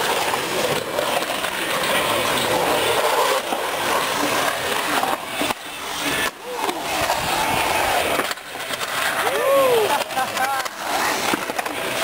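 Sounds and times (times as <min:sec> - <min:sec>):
skateboard wheels rolling on concrete: 0:00.0 - 0:12.0
faint voices of onlookers: 0:09.0 - 0:11.4.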